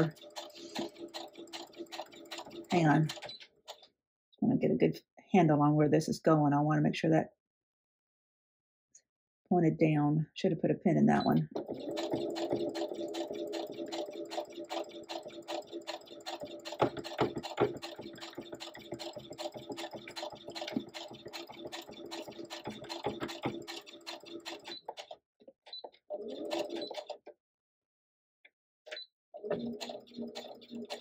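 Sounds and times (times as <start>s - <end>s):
sewing machine stitching: 0.0s - 3.9s, 11.2s - 27.3s, 28.9s - 31.0s.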